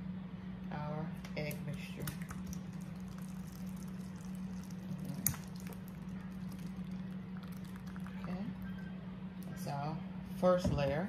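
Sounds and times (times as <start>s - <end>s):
low background hum: 0.0s - 11.0s
liquid pouring and splashing: 1.7s - 8.8s.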